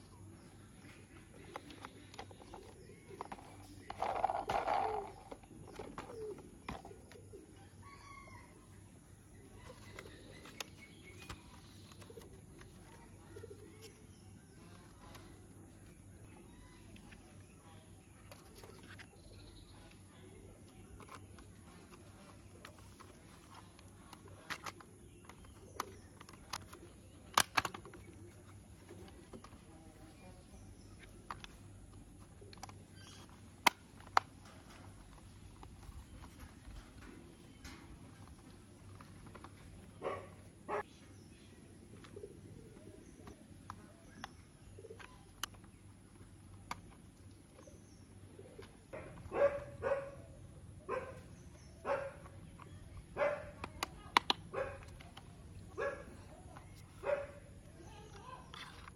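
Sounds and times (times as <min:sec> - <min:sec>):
plastic toy parts clicking: 0:03.2 - 0:06.8, 0:20.9 - 0:28.2, 0:52.3 - 0:55.4, 0:58.0 - 0:58.9.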